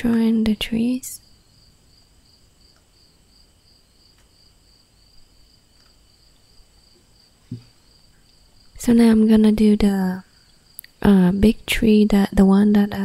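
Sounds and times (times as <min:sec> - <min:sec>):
cricket chirping: 0:01.1 - 0:08.8, 0:10.2 - 0:10.9.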